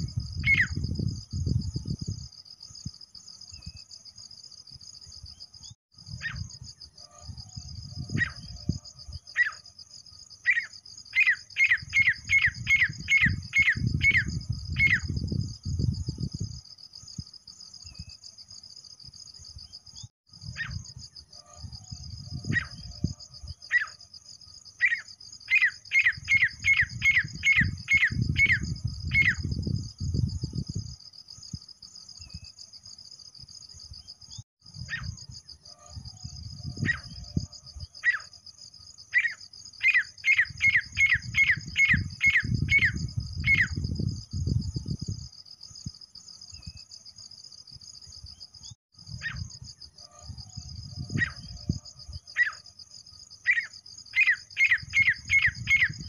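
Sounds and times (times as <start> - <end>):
francolin calling: 0.0 - 1.0, 6.1 - 9.7, 10.4 - 15.3, 20.0 - 24.0, 24.7 - 29.6, 34.8 - 38.4, 39.1 - 44.0, 49.1 - 52.8, 53.4 - 56.0
cricket trill: 0.0 - 56.0.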